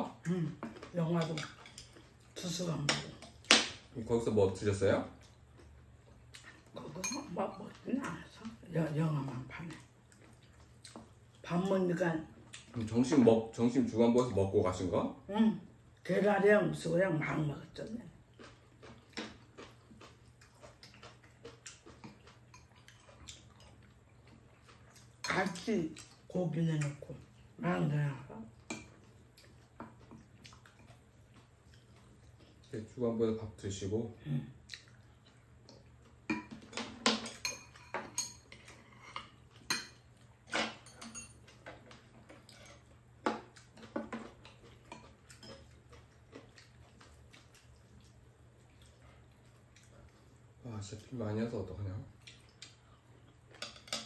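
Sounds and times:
utensils clinking on ceramic bowls: 7.0s - 7.5s, 36.3s - 41.6s.

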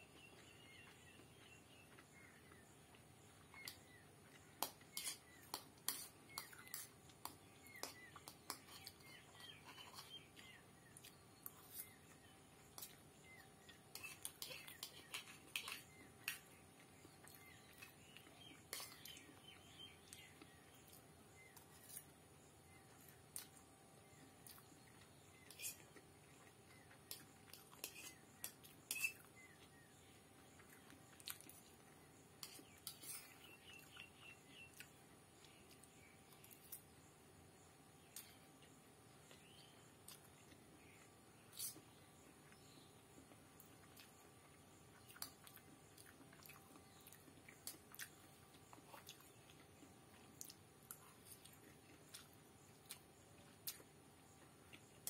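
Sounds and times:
bird chirps: 0.0s - 5.5s, 6.2s - 23.1s, 32.4s - 38.5s
fork clinking and scraping on plate: 4.6s - 6.9s, 27.8s - 29.3s
fork clicking against plate: 27.8s - 29.3s.

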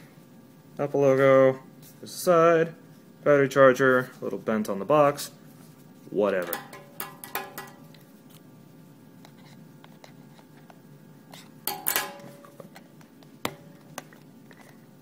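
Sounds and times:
cardboard box taps on glass: 6.4s - 7.9s.

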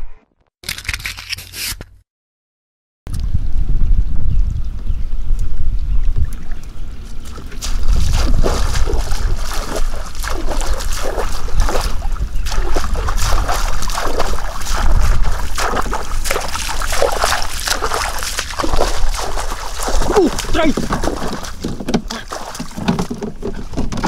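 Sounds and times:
wind rumble on microphone: 3.1s - 24.0s
water splashing and sloshing: 6.0s - 24.0s.

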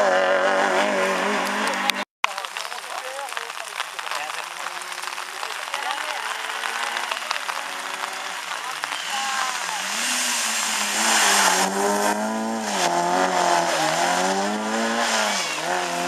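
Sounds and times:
rally car engine revving past: 0.0s - 2.0s, 9.5s - 16.0s.

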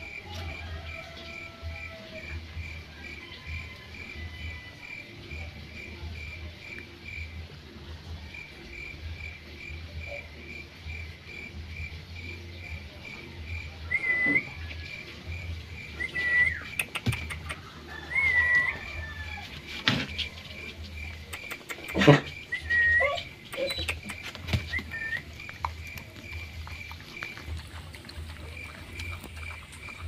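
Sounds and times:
insect chirping: 8.3s - 30.0s
high whistle-like calls: 13.9s - 14.6s, 16.0s - 16.9s, 21.9s - 25.3s.

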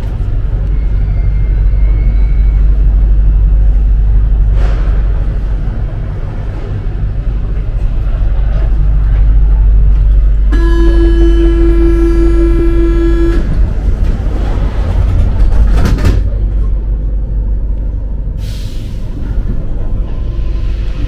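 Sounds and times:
metro train rumble: 0.0s - 21.0s
steady signal tone: 10.5s - 13.7s.

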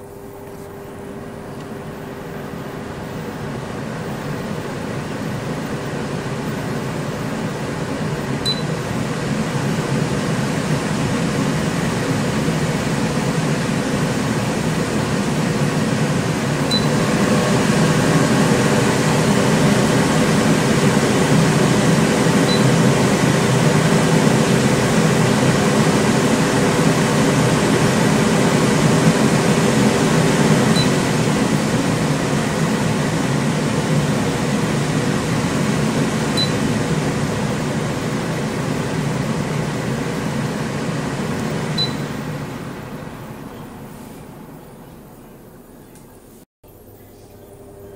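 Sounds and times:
extractor fan running: 0.0s - 47.9s.

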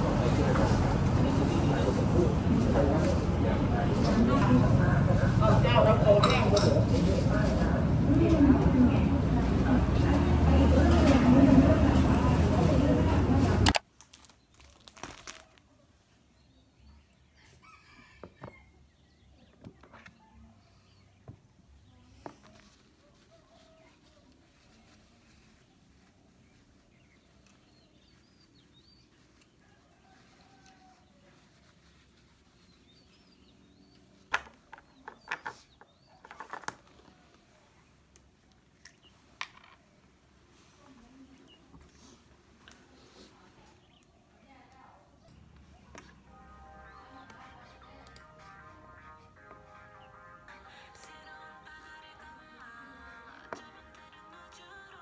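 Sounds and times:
plastic wrapper crinkling: 13.7s - 15.7s.

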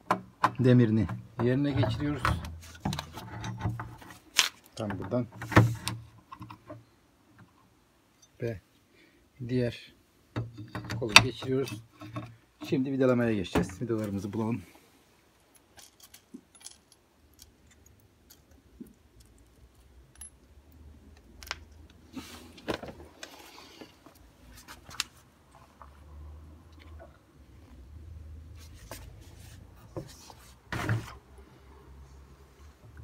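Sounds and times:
small metal hardware clinking: 15.4s - 21.9s.

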